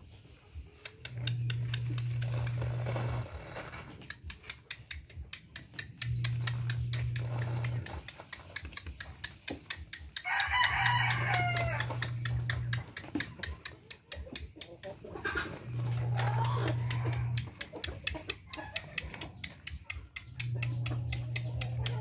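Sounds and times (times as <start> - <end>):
low steady hum: 0.3 - 3.7, 5.8 - 8.2, 10.6 - 13.0, 15.3 - 17.6, 20.0 - 22.0
light ticks: 0.6 - 3.0, 4.0 - 22.0
rooster crowing: 10.2 - 12.6, 15.7 - 17.5.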